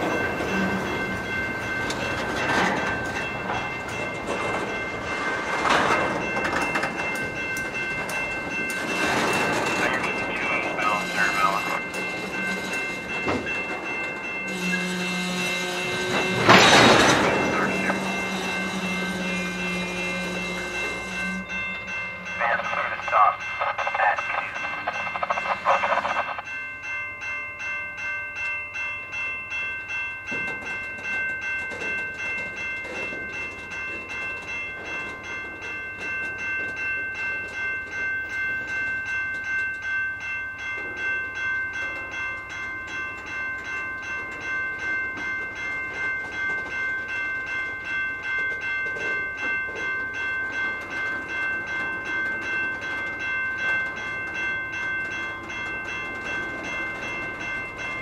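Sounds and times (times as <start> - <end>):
train wheels clicking over rail joints: 0.0 - 21.6, 30.2 - 58.0
crossing bell ringing: 0.0 - 58.0.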